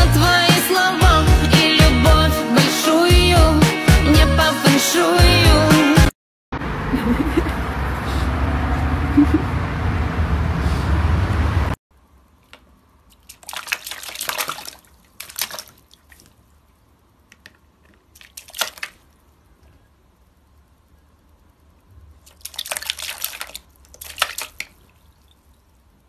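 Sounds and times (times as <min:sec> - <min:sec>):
water splashing in plastic bucket: 0:12.5 - 0:16.5, 0:17.9 - 0:19.2, 0:22.2 - 0:25.5.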